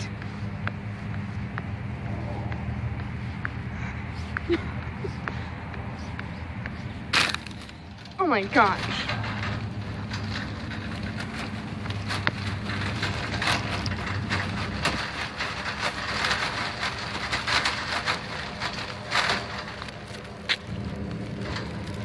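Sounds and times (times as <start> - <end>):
steady low hum: 0.0 - 22.0
shopping cart rattling: 7.1 - 22.0.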